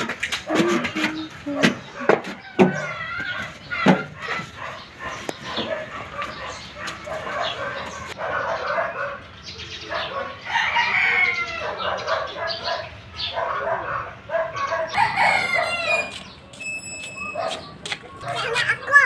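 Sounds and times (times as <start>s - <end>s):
chicken calls: 0.0s - 19.0s
rooster crowing: 10.4s - 11.8s, 14.9s - 16.3s.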